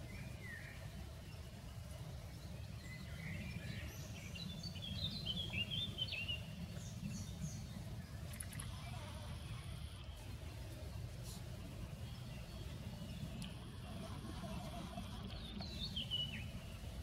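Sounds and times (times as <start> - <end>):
songbird singing: 0.0 - 17.0
faint clicks: 13.3 - 13.6.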